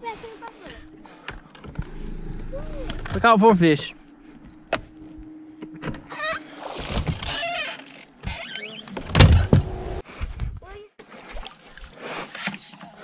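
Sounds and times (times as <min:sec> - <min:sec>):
electric motor humming: 0:01.6 - 0:04.2.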